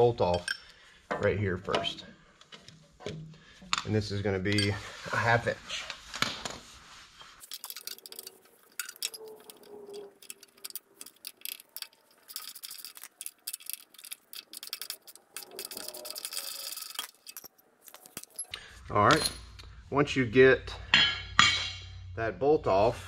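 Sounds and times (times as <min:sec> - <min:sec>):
ratchet wrench clicking: 0:10.2 - 0:17.4.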